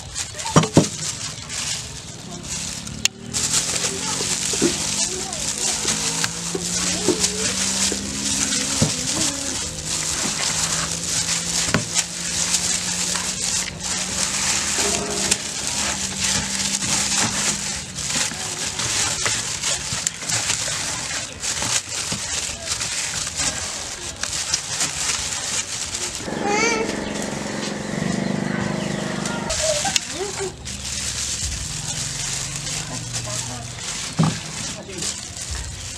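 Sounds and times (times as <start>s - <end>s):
wet squishing of skin: 0.0s - 26.3s
plastic bag crackling: 0.0s - 28.3s, 29.5s - 35.9s.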